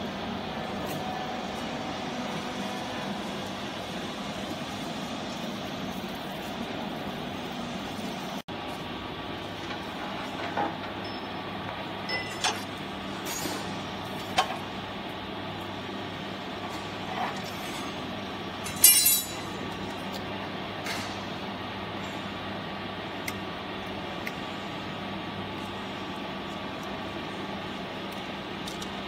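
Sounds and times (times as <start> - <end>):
machine hum: 0.0 - 29.0.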